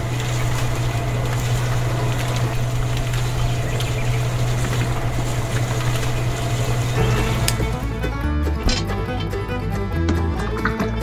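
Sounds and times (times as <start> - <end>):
small electric motor humming: 0.0 - 8.0.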